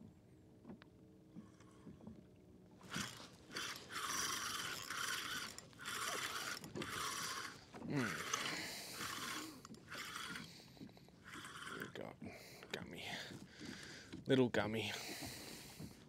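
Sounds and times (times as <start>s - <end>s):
fishing reel gears whirring: 2.8s - 14.2s.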